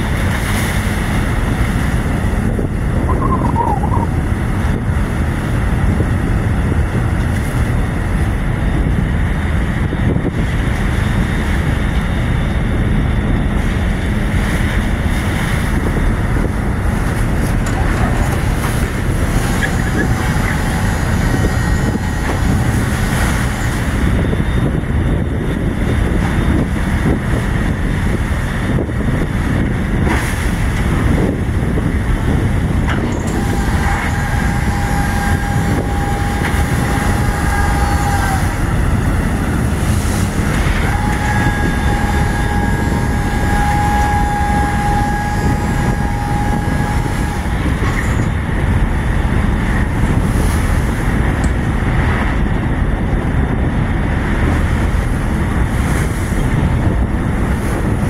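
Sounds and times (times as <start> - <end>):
boat engines rumbling: 0.0 - 58.0
wind rushing over microphone: 0.0 - 58.0
steady high tone: 33.1 - 48.5.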